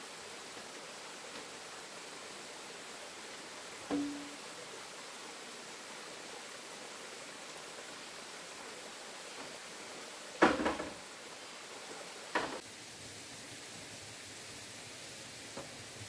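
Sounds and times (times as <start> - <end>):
running water hissing: 0.0 - 16.0.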